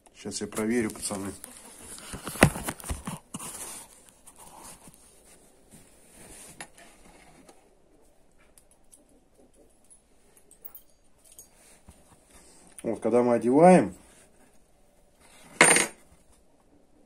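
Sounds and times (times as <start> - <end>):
rustle of handling parts: 9.7 - 12.8.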